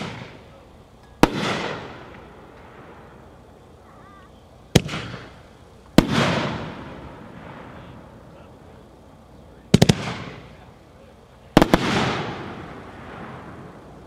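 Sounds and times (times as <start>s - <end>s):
fireworks reports: 0.0s - 14.0s
firework boom with rumbling echo: 11.6s - 13.9s.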